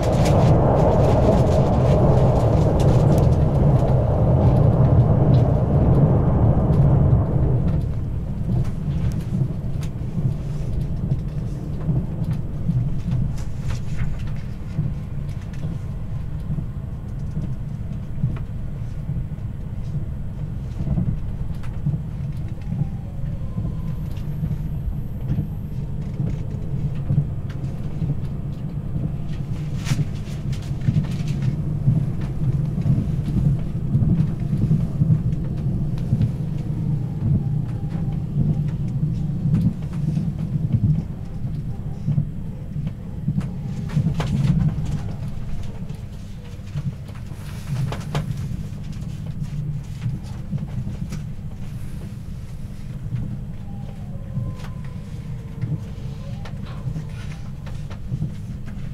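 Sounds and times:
train wheels rumbling on rails: 0.0s - 58.9s.

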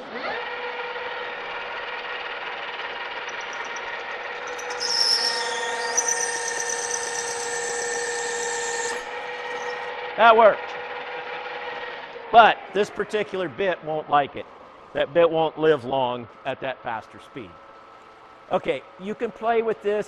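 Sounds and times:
lathe gear whine: 0.0s - 12.8s
high-pitched cutting squeal: 3.2s - 10.0s.

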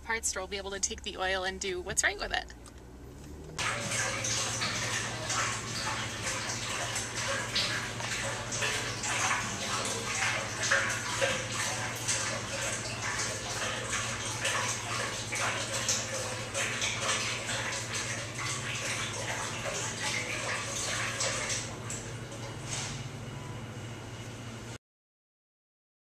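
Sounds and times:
oil pouring and gurgling: 3.6s - 23.0s.

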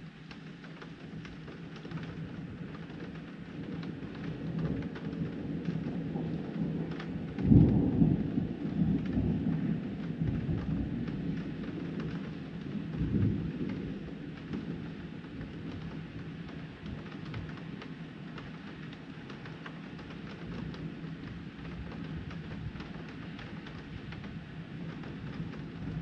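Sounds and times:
raindrops ticking on window glass: 0.0s - 26.0s
steady rain: 0.0s - 26.0s
thunder rumbling: 3.6s - 17.6s, 20.0s - 26.0s.

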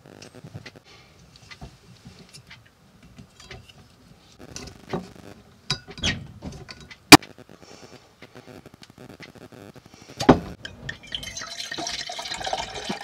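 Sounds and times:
cork creaking and squeaking: 5.8s - 6.2s, 10.6s - 12.7s
cork popping: 10.6s - 13.0s.

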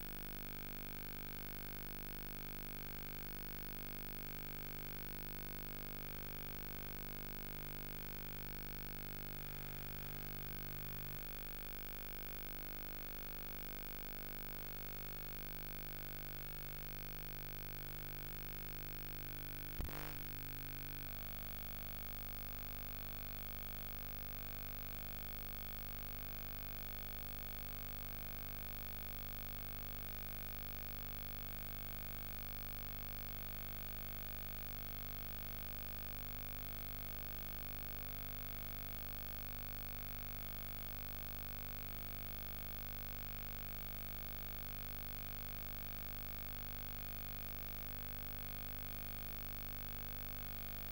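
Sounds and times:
electrical hum and hiss: 19.8s - 21.1s.

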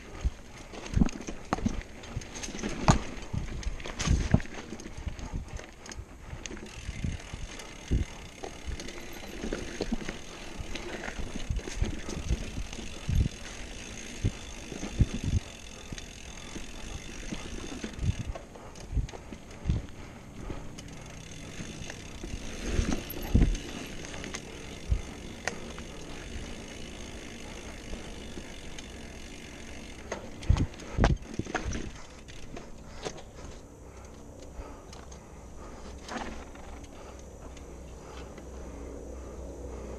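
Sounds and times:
wind noise: 0.0s - 29.1s, 30.3s - 32.6s
tyre noise: 0.0s - 33.7s.

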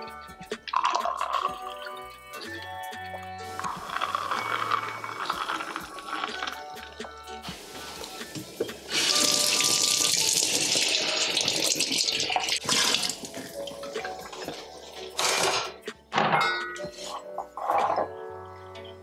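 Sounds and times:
running water: 7.4s - 14.8s.

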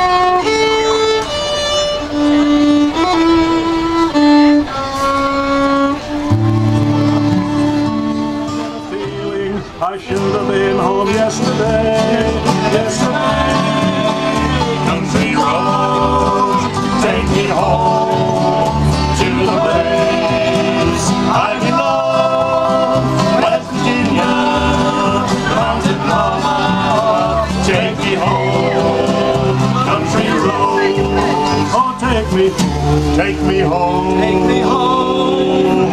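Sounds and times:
bluegrass band playing: 0.0s - 35.9s
upright bass beat: 6.3s - 8.4s.

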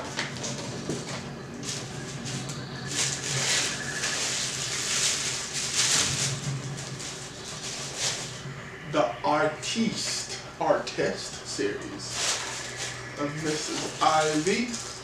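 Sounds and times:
wrapping rustling and crinkling: 0.1s - 8.4s, 12.1s - 15.0s.

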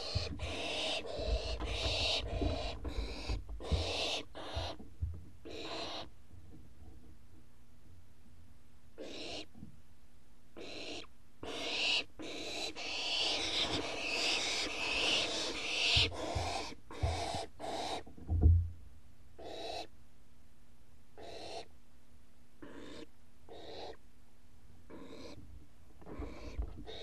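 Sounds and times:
owlets hissing begging calls: 0.0s - 4.8s, 9.0s - 9.5s, 10.6s - 18.0s, 21.2s - 21.7s, 22.6s - 24.0s.

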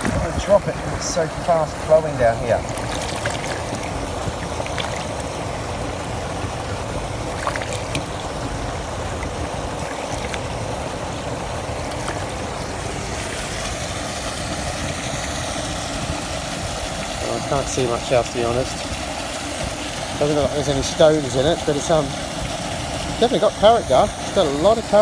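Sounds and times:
hands rinsing in water: 0.0s - 5.7s, 7.2s - 10.8s, 11.6s - 14.0s
water flowing over gravel: 0.0s - 25.0s.

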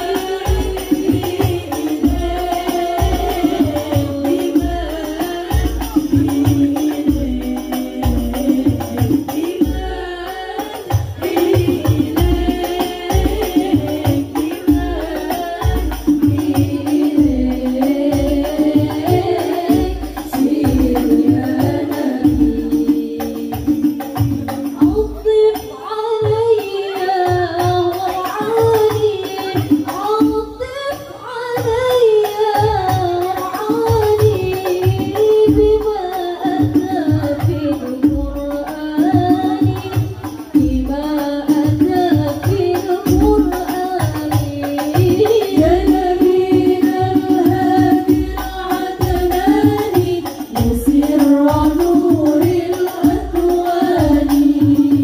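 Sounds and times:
low drum beat: 0.0s - 25.5s
hand drum: 0.0s - 55.0s.

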